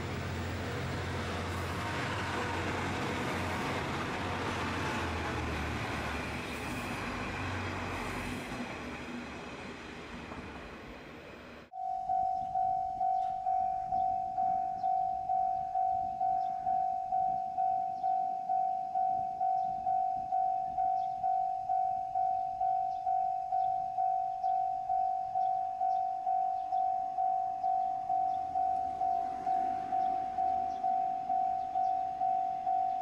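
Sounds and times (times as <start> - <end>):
diesel railcar running past: 0.0 - 11.7, 28.1 - 33.0
level crossing warning bell: 11.7 - 33.0.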